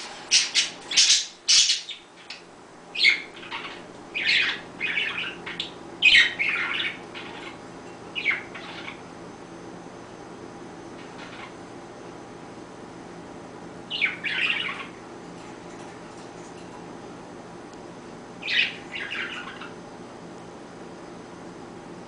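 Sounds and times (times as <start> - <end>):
budgerigars squawking and chirping: 0.3 - 2.4, 3.0 - 7.6, 8.2 - 9.0, 13.9 - 15.0, 18.4 - 19.8.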